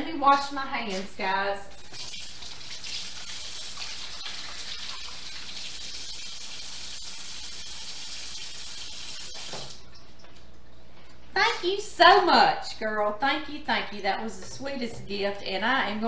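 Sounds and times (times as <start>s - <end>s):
faucet running: 1.7s - 10.4s.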